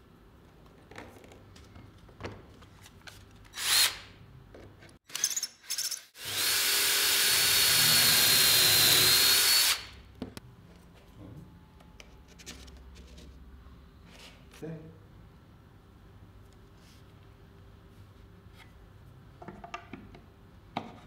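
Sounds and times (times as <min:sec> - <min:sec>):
power drill whining: 0:03.6 - 0:04.0, 0:05.1 - 0:09.9.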